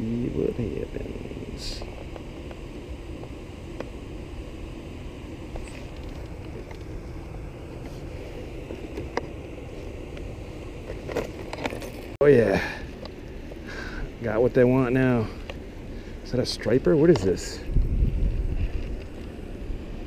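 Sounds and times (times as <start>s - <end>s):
wind rumbling on microphone: 15.6s - 20.0s.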